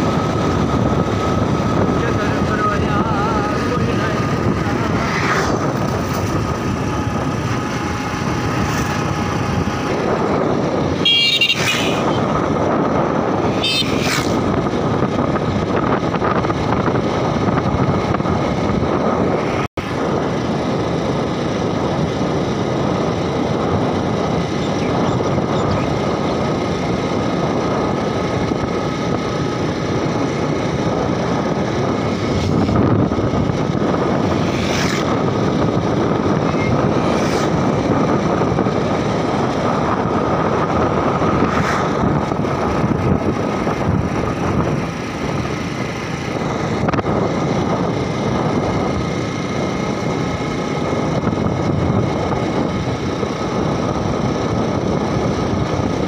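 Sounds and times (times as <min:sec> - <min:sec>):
vehicle engine and wind noise: 0:00.0 - 0:56.0
car horn: 0:10.9 - 0:12.3, 0:13.5 - 0:14.0.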